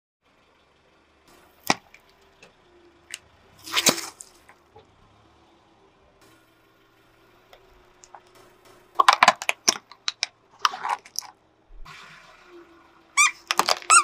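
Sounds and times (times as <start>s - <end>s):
liquid splashing out: 3.6s - 4.5s
plastic bottles crushed under tyre: 9.0s - 11.3s, 13.4s - 14.0s.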